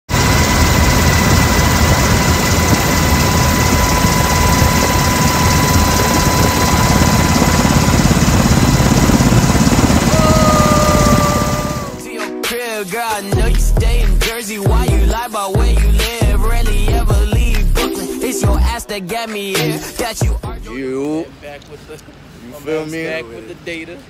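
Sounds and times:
high steady whine: 0:00.1 - 0:12.0
helicopter rotor and turbine noise: 0:00.1 - 0:12.1
music: 0:11.4 - 0:20.8.

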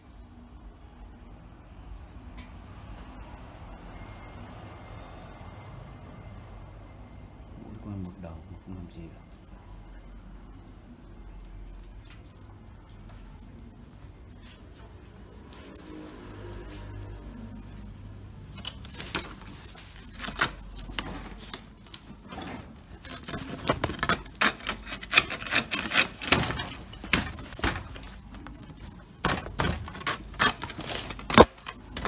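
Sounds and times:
dogs scratching and rummaging: 0:18.4 - 0:32.0
hard objects knocking and clattering: 0:22.2 - 0:32.0.

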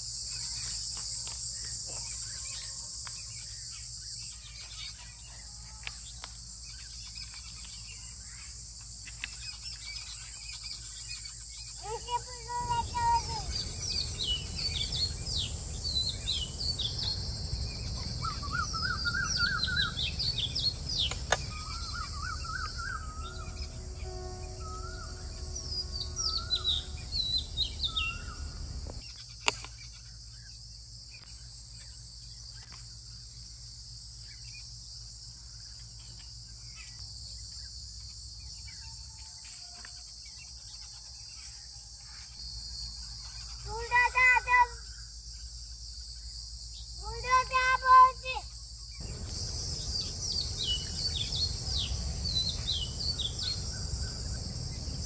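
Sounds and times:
high insect chirring: 0:00.0 - 0:55.0
birds chirping and calling: 0:00.3 - 0:30.6, 0:39.8 - 0:55.0
low background rumble: 0:12.0 - 0:29.0, 0:47.4 - 0:55.0.

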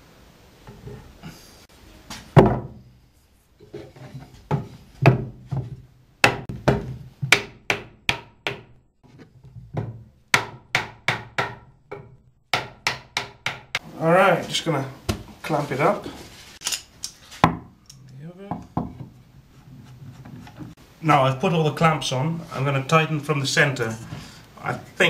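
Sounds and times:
hammer knocking wooden board: 0:02.4 - 0:02.8, 0:04.5 - 0:08.7, 0:09.8 - 0:13.8, 0:18.5 - 0:19.2.

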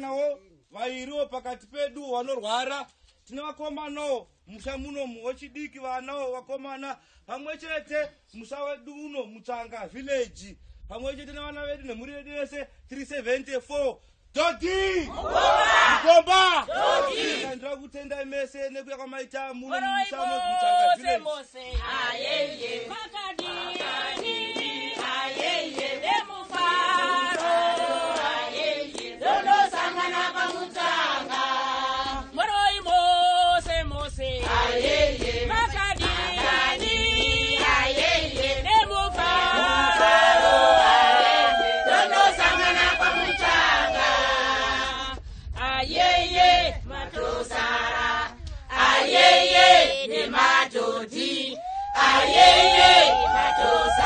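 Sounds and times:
group singing in chorus: 0:16.7 - 0:17.5, 0:19.8 - 0:54.0.

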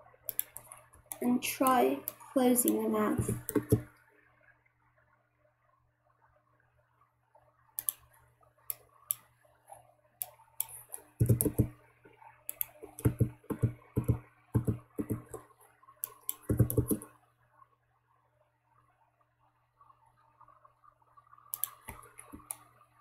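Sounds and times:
mouse and keyboard clicks: 0:00.3 - 0:01.2, 0:02.0 - 0:03.9, 0:07.8 - 0:08.1, 0:10.2 - 0:11.7, 0:12.5 - 0:17.1, 0:21.5 - 0:22.6.

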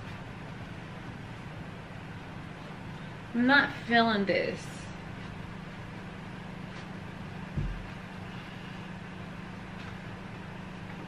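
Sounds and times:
low hum: 0:00.0 - 0:11.0
dull thump: 0:07.5 - 0:08.0.

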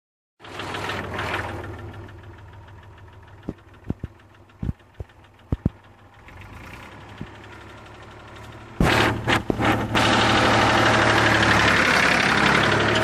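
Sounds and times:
tractor diesel engine running: 0:00.4 - 0:13.0
sharp clicks and knocks: 0:03.4 - 0:06.0, 0:07.1 - 0:07.5, 0:08.4 - 0:10.0.

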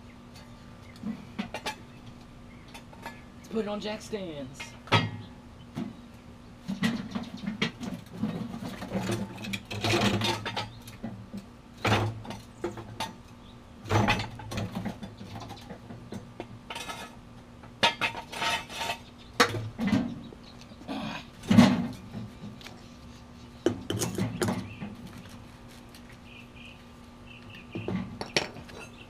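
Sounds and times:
metal clanks and rattles: 0:06.6 - 0:13.2, 0:13.8 - 0:20.3, 0:20.9 - 0:22.6, 0:23.6 - 0:25.4.

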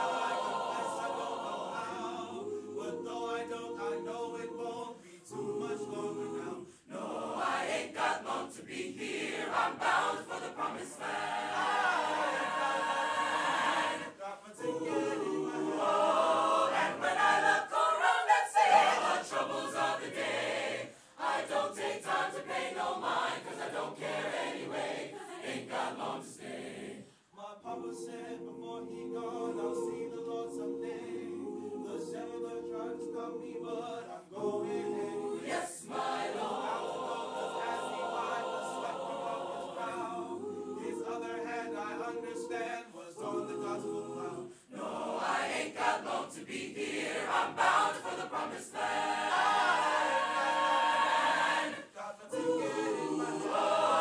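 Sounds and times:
choir singing a cappella: 0:00.0 - 0:54.0.

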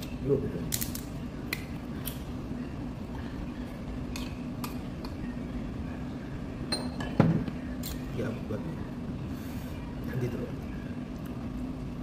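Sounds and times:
ringing glass clink: 0:06.7 - 0:07.2
glass and tableware clinks: 0:06.7 - 0:07.4.

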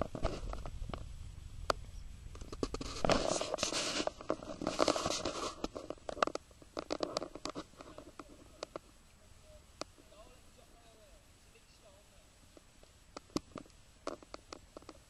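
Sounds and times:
rubbing on microphone: 0:00.0 - 0:09.0
sharp clicks: 0:12.5 - 0:15.0.

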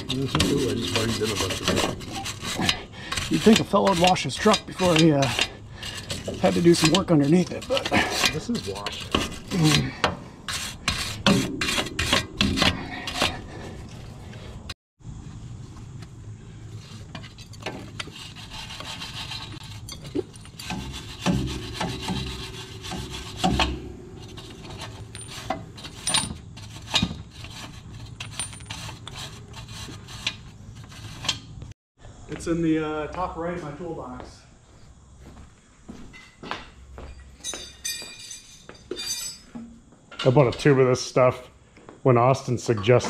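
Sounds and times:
wire brush scrubbing metal: 0:00.0 - 0:14.1, 0:16.8 - 0:31.5
light scraping: 0:00.0 - 0:14.7, 0:16.7 - 0:31.6.

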